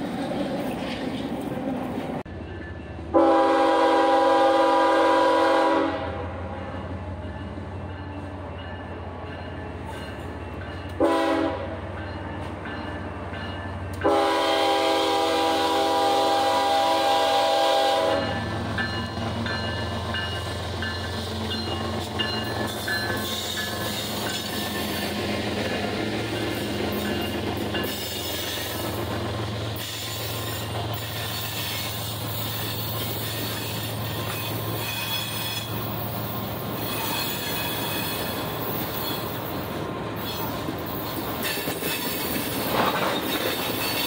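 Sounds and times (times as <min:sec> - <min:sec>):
locomotive engine drone: 0:00.0 - 0:44.0
locomotive air horn: 0:03.1 - 0:06.5, 0:11.0 - 0:11.8, 0:14.0 - 0:18.5
train wheel clatter: 0:18.1 - 0:44.0.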